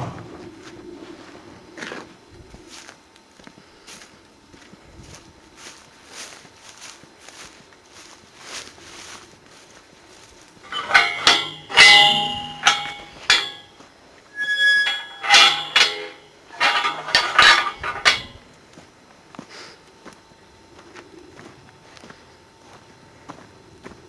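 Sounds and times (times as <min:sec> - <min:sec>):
metal gate clanging: 0:10.6 - 0:18.5
high squeak: 0:10.7 - 0:13.7, 0:14.3 - 0:18.4.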